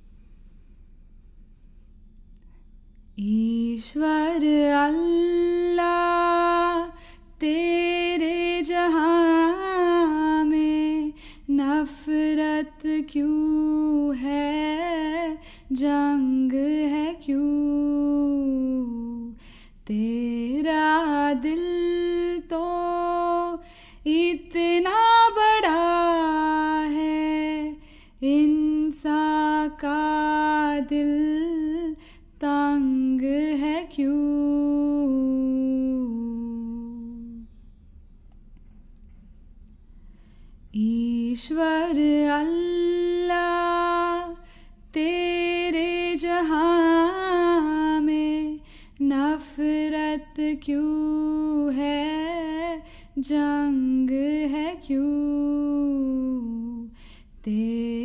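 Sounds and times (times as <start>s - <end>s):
woman singing wordless melody: 3.2s - 37.5s, 40.7s - 58.0s
singer breathing: 11.2s - 11.5s, 15.4s - 15.7s, 19.4s - 19.8s, 23.6s - 24.0s, 27.8s - 28.2s, 40.0s - 40.7s, 44.4s - 44.9s, 48.6s - 49.0s, 56.9s - 57.4s.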